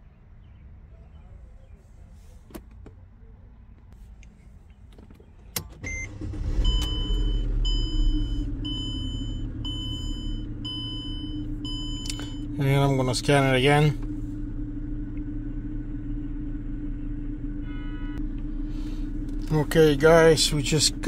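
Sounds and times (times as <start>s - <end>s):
car engine running: 3.9s - 21.0s
ignition click: 4.2s - 8.5s, 11.7s - 12.5s
dashboard warning chime: 5.8s - 12.6s.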